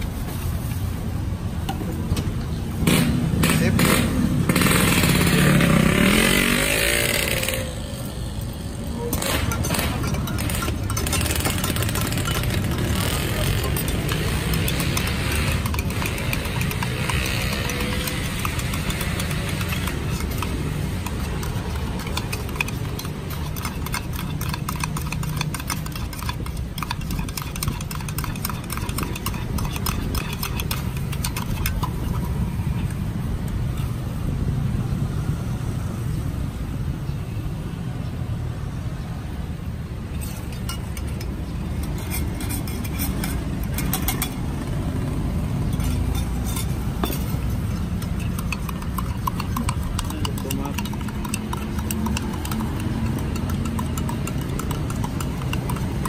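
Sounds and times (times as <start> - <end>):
metal spoon clinking in pitcher: 9.1 - 32.4, 40.1 - 44.6, 45.6 - 56.0.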